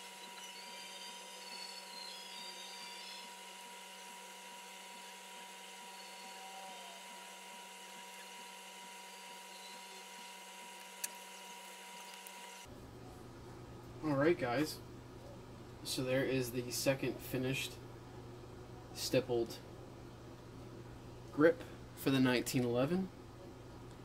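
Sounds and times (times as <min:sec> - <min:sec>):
steady hum: 0:00.0 - 0:24.0.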